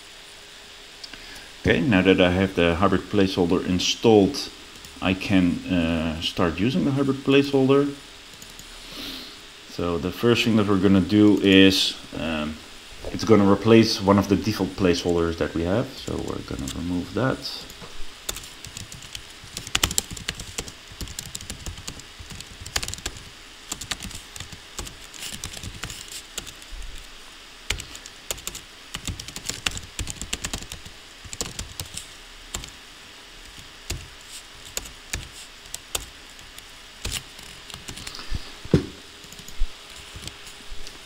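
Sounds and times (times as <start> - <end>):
computer keyboard typing: 18.3 - 26.6, 27.7 - 32.8, 33.5 - 38.1.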